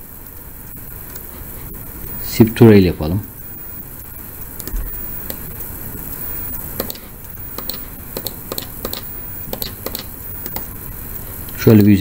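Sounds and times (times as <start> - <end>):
steady background hiss: 0.0 - 12.0
computer mouse clicking: 4.6 - 5.5, 6.8 - 10.8.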